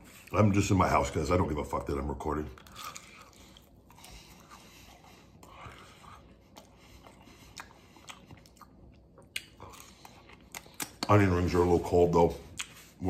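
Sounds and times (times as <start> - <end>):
chewing onion ring crunches: 2.5 - 11.5.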